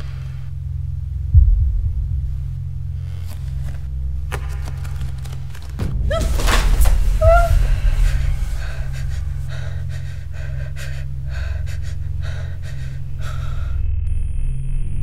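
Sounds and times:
steady low hum: 0.0 - 15.0
woman breathing rapidly: 4.9 - 13.9
woman gasping: 6.1 - 13.8.

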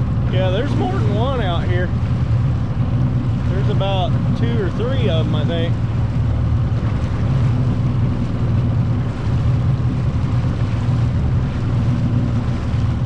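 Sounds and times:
boat engine humming: 0.0 - 13.0
water rushing: 0.0 - 13.0
wind buffeting microphone: 0.0 - 13.0.

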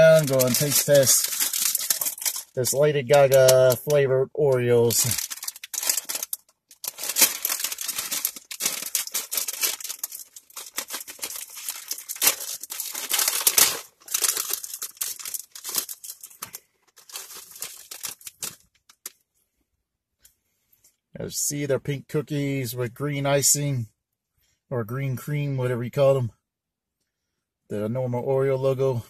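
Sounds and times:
plastic wrapper crinkling and tearing: 0.0 - 19.2.

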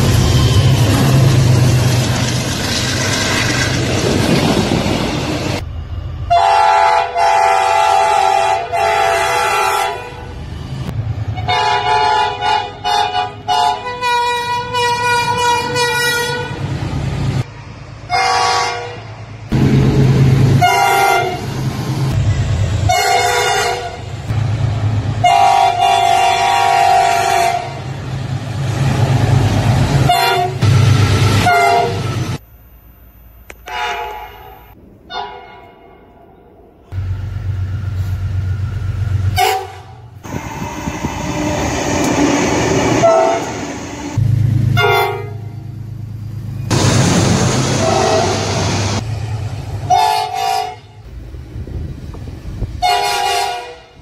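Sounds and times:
locomotive horn blasts: 6.3 - 10.3, 11.4 - 16.6, 18.1 - 19.1, 20.6 - 21.5, 22.9 - 24.1, 25.2 - 27.8, 30.0 - 30.7, 31.3 - 32.4, 33.6 - 35.7, 39.3 - 41.2, 43.0 - 43.5, 44.7 - 45.6, 47.8 - 48.4, 49.9 - 51.1, 52.8 - 54.0
diesel engine rumble: 36.9 - 54.0.

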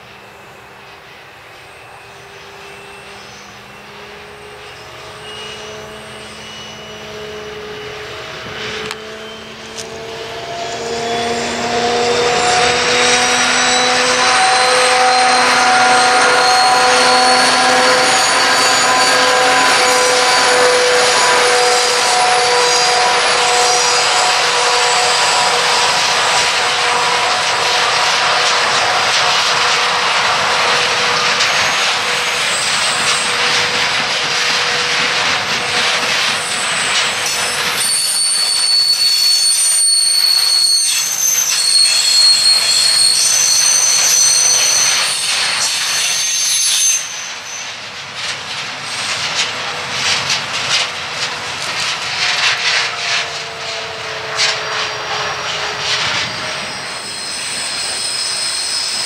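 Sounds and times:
train wheels rumbling and rattling: 0.0 - 59.0
high-pitched wheel squeal: 0.2 - 48.0, 48.8 - 59.0.

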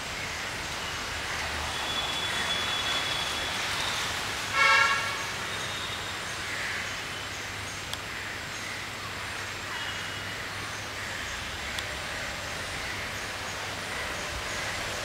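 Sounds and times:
street traffic hum: 0.0 - 15.0
vehicle horn honk: 4.5 - 5.3.

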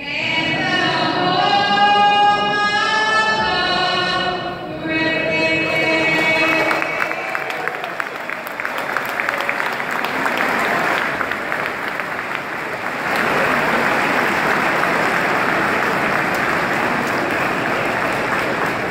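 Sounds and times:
arena crowd applauding: 5.7 - 18.9.

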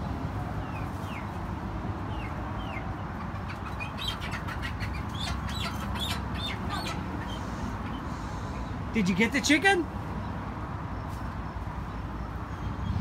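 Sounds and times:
chickens clucking and squawking: 0.5 - 10.2.

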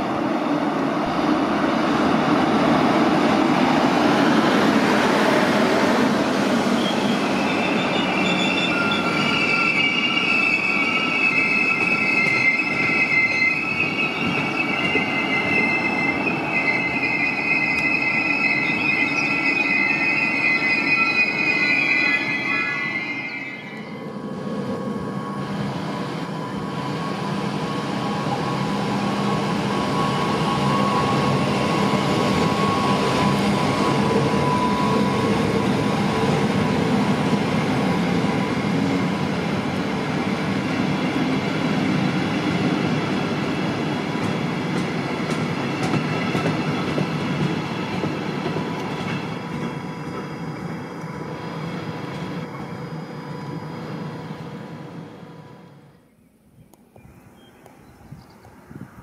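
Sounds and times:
electric locomotive hum: 0.0 - 59.0
wheels rumbling on rails: 23.6 - 56.0.

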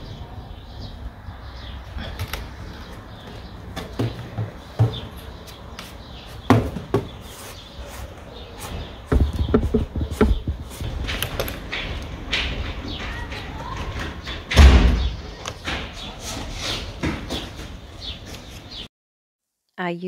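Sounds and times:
knocks and clicks of wood and tools: 9.1 - 16.1.

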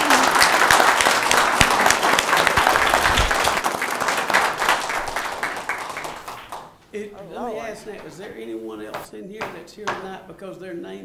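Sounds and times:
crowd clapping: 0.0 - 6.8.

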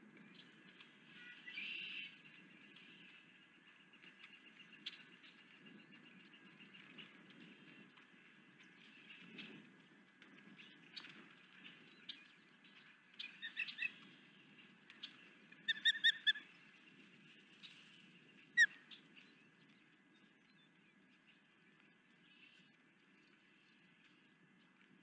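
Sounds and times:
osprey chirping: 15.6 - 16.4.

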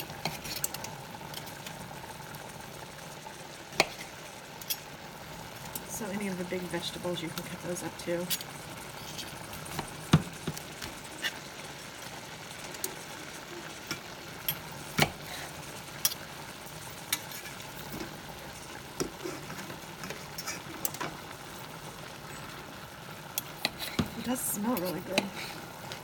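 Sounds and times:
utensils scraping a pan: 0.0 - 1.7, 3.8 - 4.9, 7.4 - 11.7, 13.6 - 21.2, 23.4 - 26.0
food sizzling in a skillet: 0.0 - 26.0.

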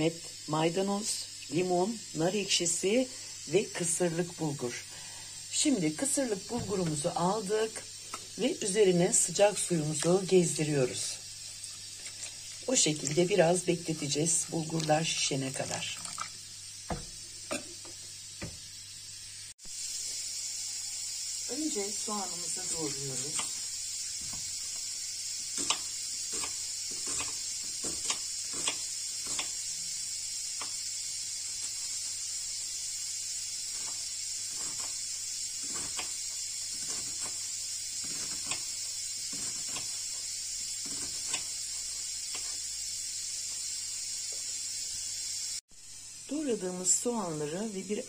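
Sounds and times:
steady background hiss: 0.0 - 48.0
knife chopping on wooden board: 16.9 - 17.2.

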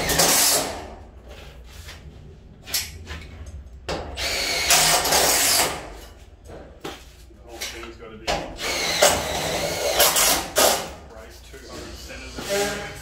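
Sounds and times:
cordless drill driving screws: 4.2 - 5.8, 8.6 - 10.8.

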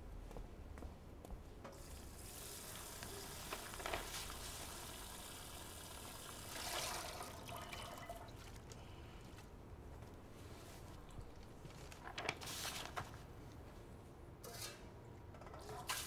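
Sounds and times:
water running from a tap: 4.3 - 8.0.

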